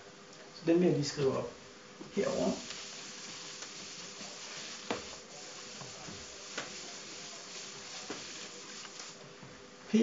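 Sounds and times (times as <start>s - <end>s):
steady hiss: 0.6s - 10.0s
eraser wiping chalkboard: 2.2s - 9.2s.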